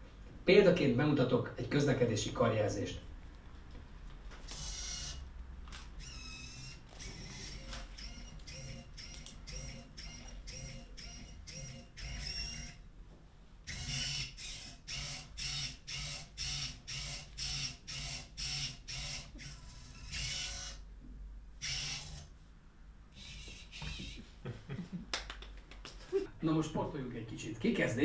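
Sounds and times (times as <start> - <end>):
servo motors whirring: 4.5 - 5.2, 6.0 - 12.8, 13.7 - 20.8, 21.6 - 22.3, 23.2 - 24.2.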